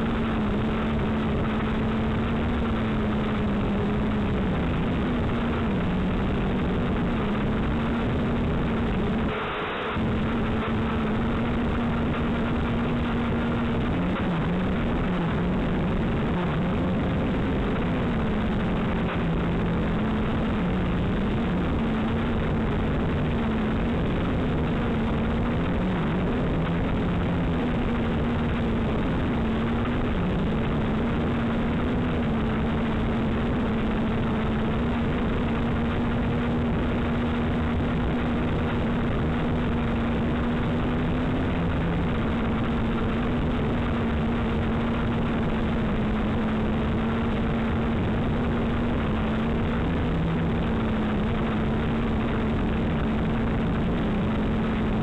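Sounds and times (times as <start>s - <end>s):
drone motors whining: 0.0s - 36.0s.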